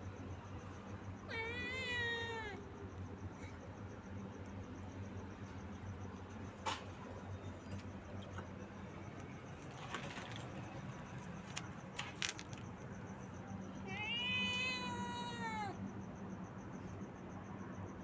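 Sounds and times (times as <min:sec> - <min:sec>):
cat meowing: 0:01.3 - 0:02.6, 0:13.8 - 0:15.8.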